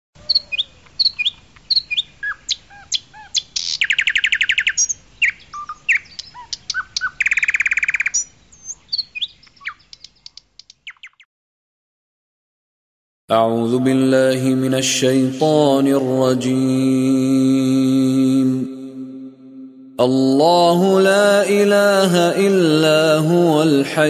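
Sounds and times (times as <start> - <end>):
bird chirping and trilling: 0.2 - 11.3.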